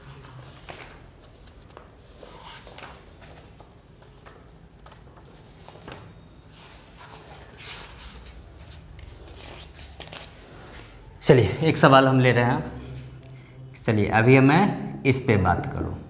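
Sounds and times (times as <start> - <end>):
paper rustling: 0.0 - 11.0
page being turned: 0.2 - 10.9.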